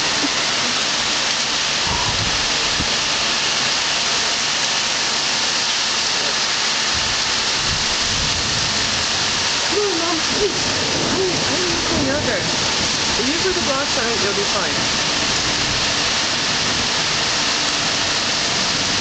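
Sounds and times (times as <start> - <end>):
gusting wind: 0.0 - 4.2, 6.8 - 19.0
heavy rain pouring: 0.0 - 19.0
thunder rumbles: 1.6 - 3.3, 6.9 - 19.0.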